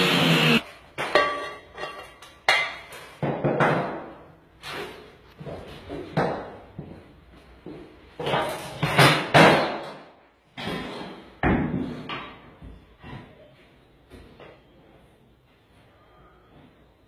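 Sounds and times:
angle grinder cutting tile: 0:00.0 - 0:00.6.

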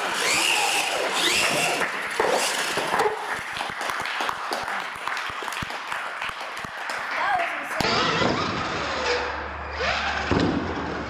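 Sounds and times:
crowd clapping: 0:00.0 - 0:07.9.

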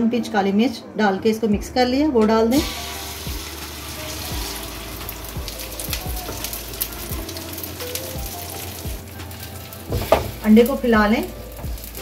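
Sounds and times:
eggs sizzling on a griddle: 0:02.6 - 0:12.0.

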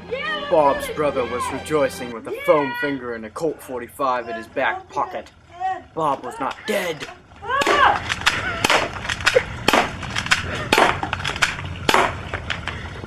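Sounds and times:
low rumbling noise: 0:00.0 - 0:02.4.

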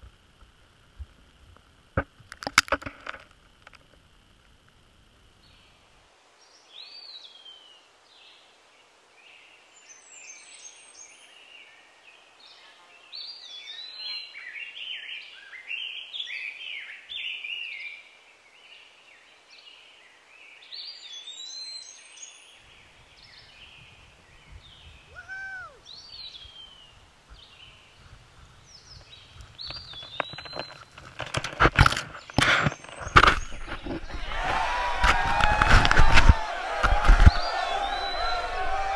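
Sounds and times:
songbirds singing: 0:05.4 - 0:31.2, 0:37.0 - 0:38.7.

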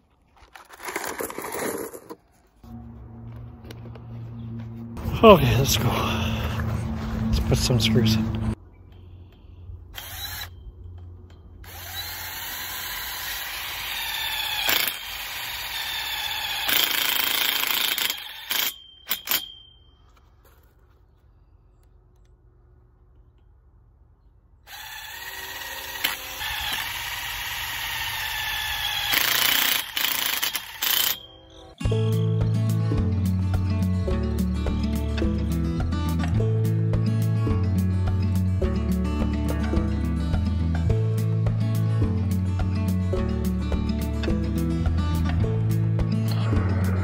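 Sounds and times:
cordless drill driving screws into metal: 0:11.6 - 0:19.4, 0:24.7 - 0:31.2.

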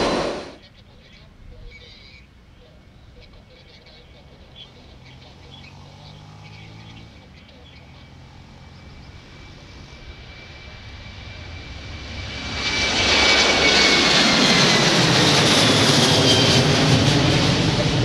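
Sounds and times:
high engine whine: 0:00.0 - 0:00.6, 0:04.0 - 0:18.0
jet engines at takeoff: 0:00.0 - 0:06.0, 0:06.8 - 0:18.0.

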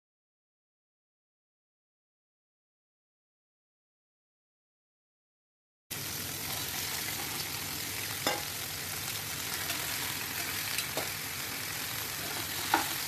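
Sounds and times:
food sizzling in frying pan: 0:05.9 - 0:13.0
spoon clicking against pan: 0:08.2 - 0:08.5.

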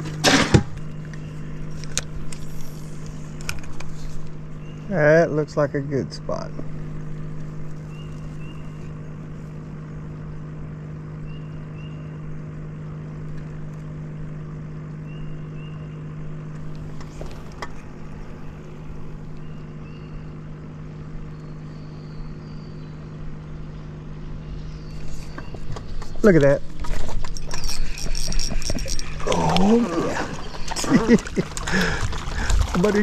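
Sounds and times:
electric boat motor humming: 0:00.0 - 0:33.0
faint bird chirps: 0:07.8 - 0:09.2, 0:19.3 - 0:20.4, 0:21.2 - 0:23.2.

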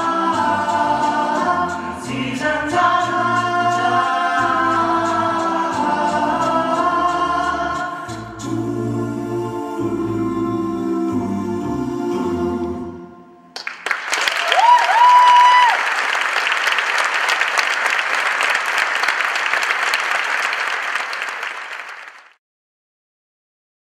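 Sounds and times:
a cappella vocal chord: 0:00.0 - 0:13.5
audience applauding: 0:13.6 - 0:22.4.

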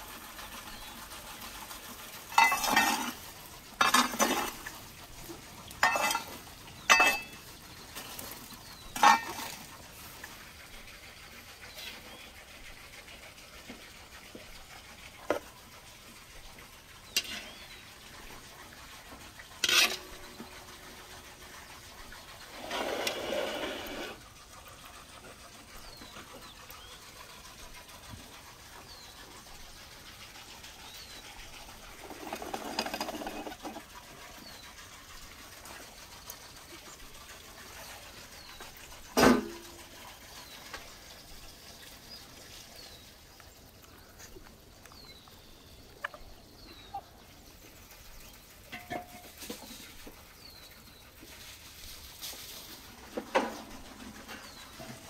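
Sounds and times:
quiet outdoor ambience: 0:00.0 - 0:55.0
cast-iron pan scraping: 0:01.8 - 0:04.8, 0:05.7 - 0:07.4, 0:08.0 - 0:09.8, 0:17.0 - 0:18.4, 0:19.1 - 0:21.3, 0:22.2 - 0:24.3, 0:32.0 - 0:33.9, 0:48.7 - 0:50.6.

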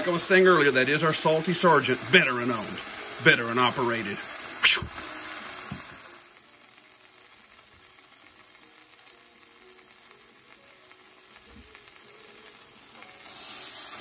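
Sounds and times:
light crackles of frying liquid: 0:00.0 - 0:14.0
meat sizzling on a griddle: 0:00.0 - 0:14.0.

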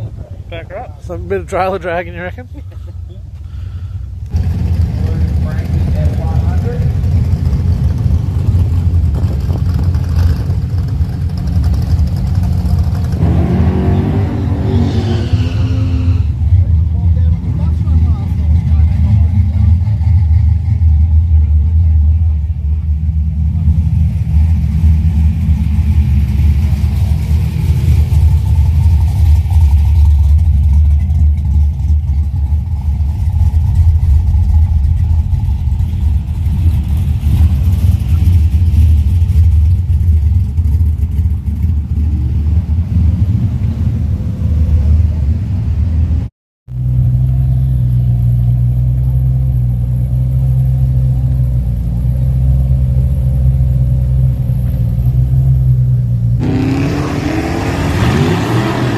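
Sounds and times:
drag car engines idling: 0:00.0 - 0:13.2, 0:16.3 - 0:56.4.

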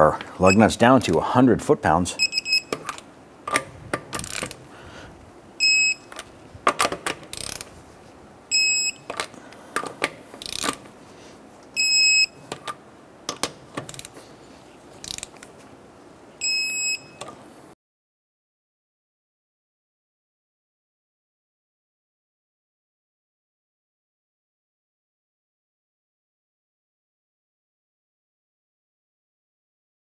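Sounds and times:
torque wrench beeping: 0:00.4 - 0:00.8, 0:02.2 - 0:03.0, 0:05.6 - 0:06.2, 0:07.3 - 0:07.6, 0:08.5 - 0:09.1, 0:11.8 - 0:12.4, 0:16.4 - 0:17.3
ratchet clicks: 0:02.7 - 0:04.6, 0:06.1 - 0:07.7, 0:10.4 - 0:10.8, 0:15.0 - 0:15.5.

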